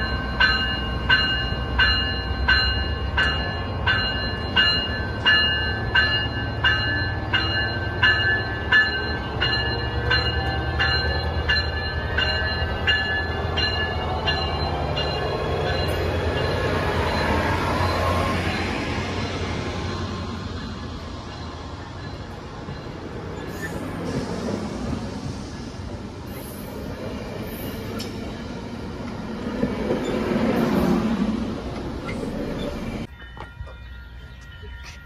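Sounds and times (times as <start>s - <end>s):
bell ringing: 0.0s - 18.7s, 32.5s - 35.0s
diesel locomotive rumbling: 0.0s - 35.0s.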